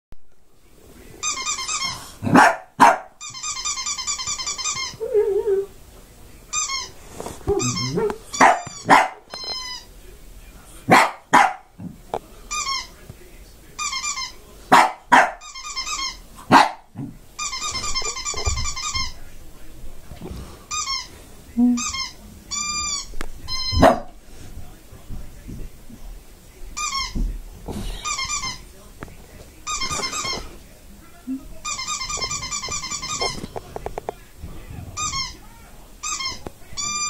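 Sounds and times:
dog barking: 2.2 - 3.2, 7.6 - 9.2, 10.9 - 11.7, 14.7 - 15.4, 16.5 - 16.9, 23.8 - 24.2
electronic chirping from phone: 36.0 - 37.0.

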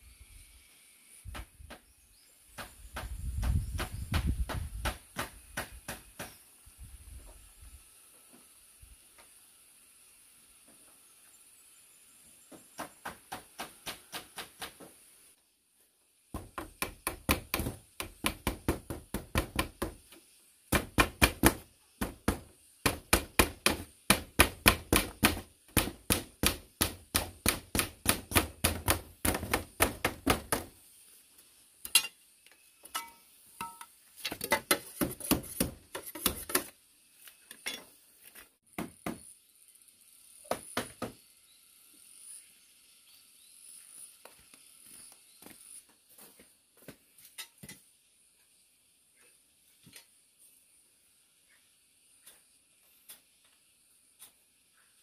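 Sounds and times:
hand tool striking wood: 2.6 - 6.4, 12.5 - 15.0, 16.3 - 30.7, 32.8 - 36.7, 38.7 - 39.2, 40.5 - 41.2.

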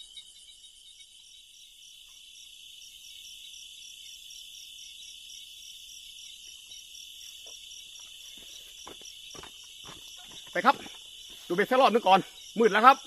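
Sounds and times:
crickets trilling: 0.0 - 13.0
higher pulsing insect trill: 0.0 - 13.0.

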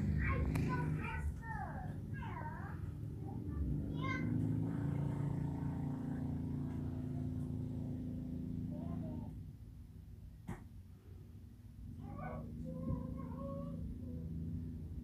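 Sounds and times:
motor engine humming: 0.0 - 9.3.

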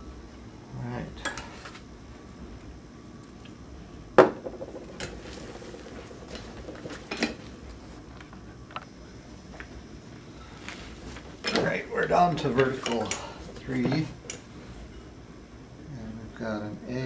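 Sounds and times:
hard objects clicking and knocking: 4.2 - 8.9.

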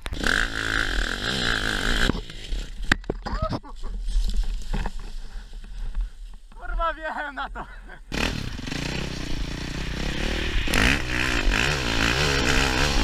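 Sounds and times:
motorcycle engine running: 8.1 - 13.0.

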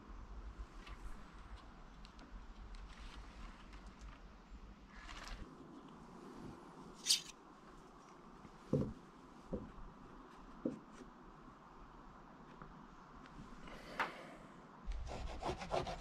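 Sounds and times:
sharp rustle: 6.9 - 7.4
soft knocks on wood: 8.7 - 9.8.

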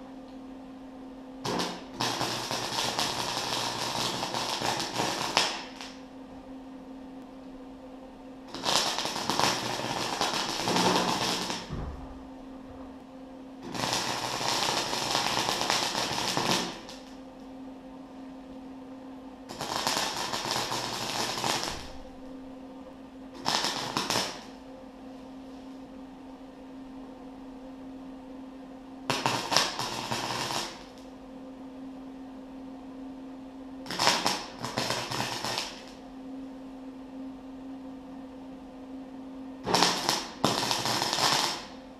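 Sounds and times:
steady hum: 0.0 - 41.9
arc welder crackling: 1.4 - 6.4, 8.4 - 17.5, 19.4 - 22.6, 23.3 - 24.7, 29.0 - 31.2, 33.8 - 36.0, 39.6 - 41.9.

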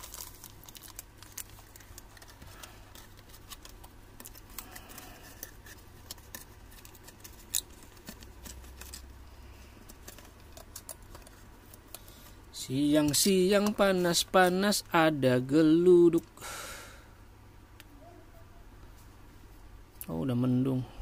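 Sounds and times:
cardboard and plastic handling: 0.0 - 12.4.

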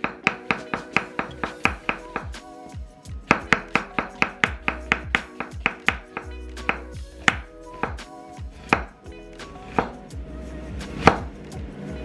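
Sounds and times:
knife tapping cutting board: 0.0 - 2.3, 3.3 - 8.0
background music: 0.0 - 12.0.

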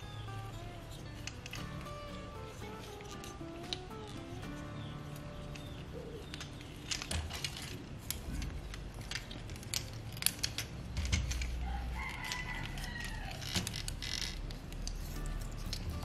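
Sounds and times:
plastic toy parts clicking: 0.3 - 4.6, 5.4 - 16.0.

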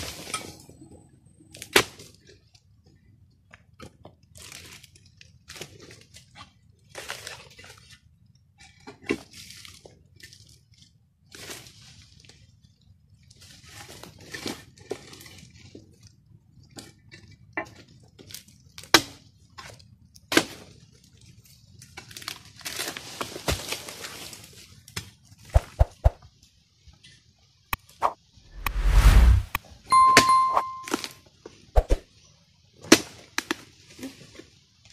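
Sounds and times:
palm fronds rustling: 22.6 - 24.6.

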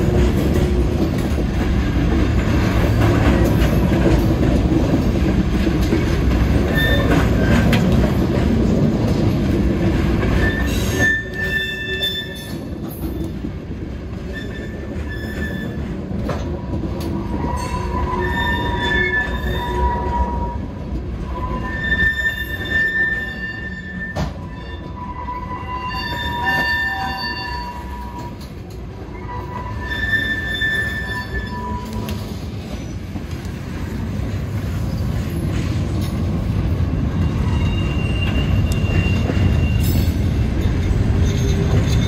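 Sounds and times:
freight train rumbling past: 0.0 - 42.0
steel wheels squealing: 6.5 - 8.0, 10.3 - 13.4, 14.2 - 16.4, 17.0 - 33.2, 34.8 - 42.0.

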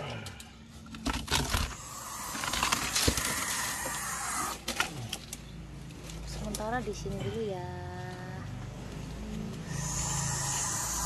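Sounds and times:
owl hissing: 1.7 - 4.6, 9.6 - 11.0.

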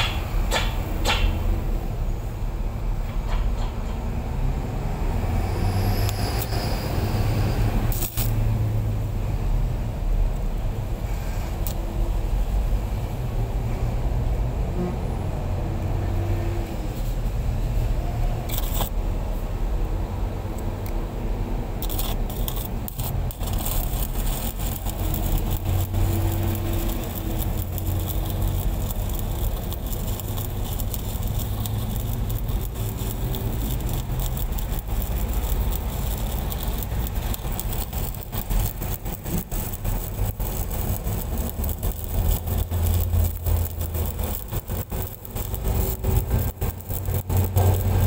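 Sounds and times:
welding arc crackling: 0.0 - 2.2, 4.4 - 14.4, 15.6 - 19.0, 20.4 - 48.0
engine humming: 19.2 - 48.0.

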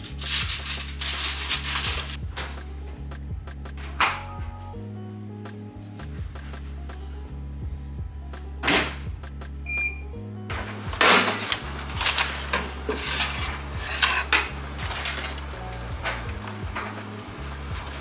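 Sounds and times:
paper bag crinkling: 0.0 - 2.2, 10.6 - 18.0
background music with bass: 0.0 - 18.0
short electronic beep: 9.7 - 10.2.

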